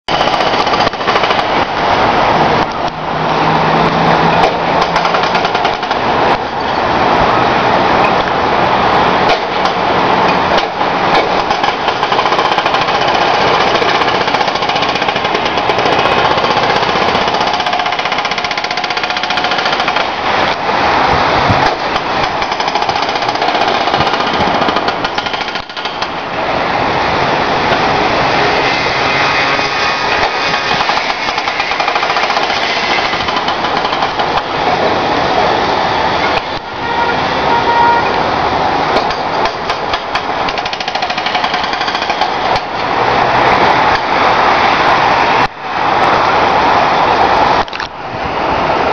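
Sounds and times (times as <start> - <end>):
hydraulic breaker hammering asphalt: 0.1 - 1.6, 9.3 - 20.6, 21.4 - 26.2, 30.2 - 34.5, 39.0 - 42.7.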